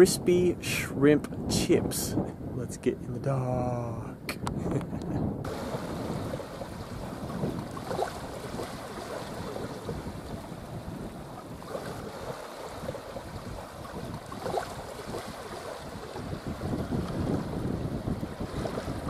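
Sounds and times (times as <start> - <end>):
wind on microphone: 0.0 - 19.0
small waves washing onto beach: 5.4 - 19.0.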